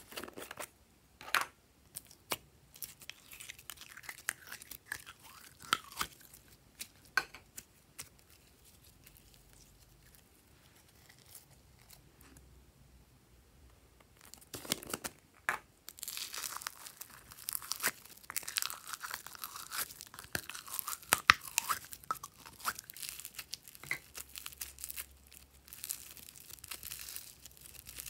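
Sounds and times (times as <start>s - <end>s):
slime squeezed crackling: 2.0s - 12.0s, 15.9s - 28.0s.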